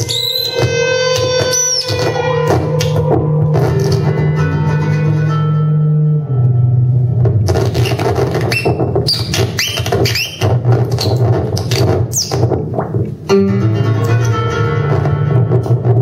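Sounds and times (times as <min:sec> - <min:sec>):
sweeping squeals: 0:00.0 - 0:07.0
low synthesizer drone: 0:02.0 - 0:08.3
sustained synthesizer chord: 0:02.3 - 0:07.4
glitchy noise hits: 0:06.2 - 0:16.0.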